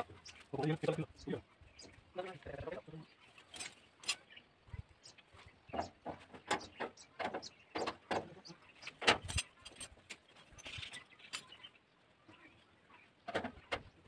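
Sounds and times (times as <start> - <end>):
knocks and clatters on machine: 5.7 - 8.4.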